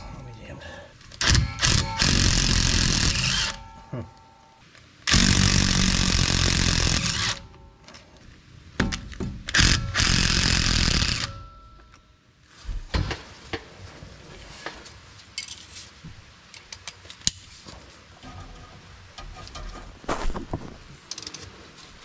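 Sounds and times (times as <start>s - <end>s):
impact wrench whirring: 1.2s - 3.6s, 5.1s - 7.5s, 9.6s - 11.3s
hand wrench clicking on bolts: 21.1s - 21.5s.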